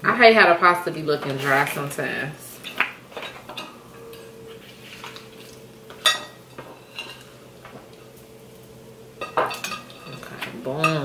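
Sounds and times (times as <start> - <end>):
forks scraping and tapping plates: 2.6 - 7.4, 9.2 - 11.0.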